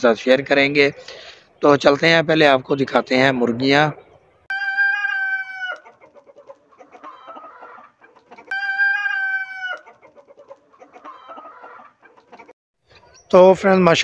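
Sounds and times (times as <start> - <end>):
chickens clucking softly: 3.8 - 13.2
chicken long calls: 4.5 - 12.5.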